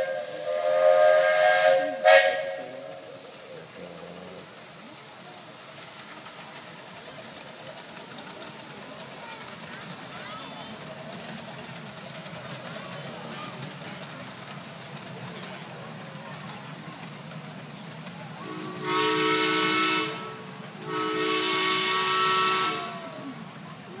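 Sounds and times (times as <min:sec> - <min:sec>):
steam train whistle: 0:00.0 - 0:03.2, 0:18.4 - 0:23.3
passing train noise: 0:00.0 - 0:24.0.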